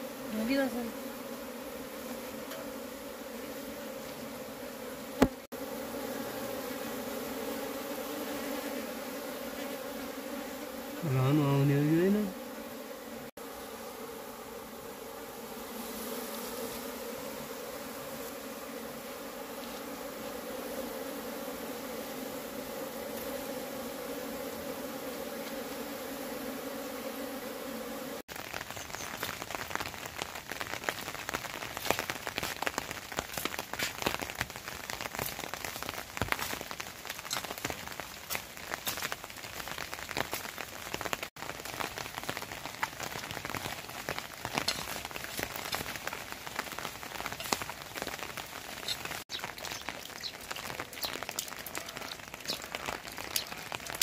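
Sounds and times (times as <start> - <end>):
rain pattering: 28.3 - 54.0.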